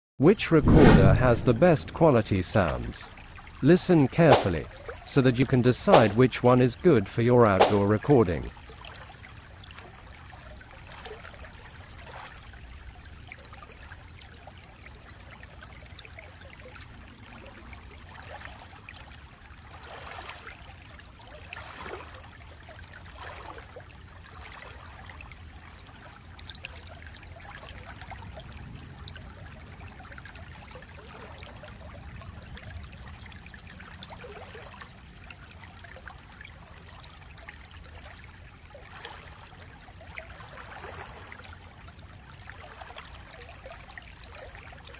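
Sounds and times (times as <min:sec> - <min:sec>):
steady low rumble: 0:00.6 - 0:03.1
small splashes: 0:00.8 - 0:05.1, 0:05.9 - 0:06.3, 0:07.5 - 0:14.1, 0:18.2 - 0:28.7, 0:33.1 - 0:44.9
stream babbling over stones: 0:01.2 - 0:15.0.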